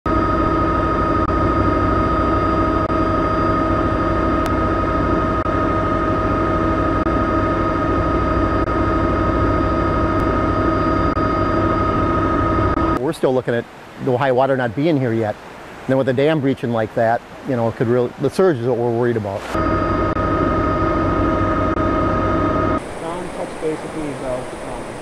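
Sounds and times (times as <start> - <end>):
helicopter running: 0.1 - 13.0, 19.4 - 25.0.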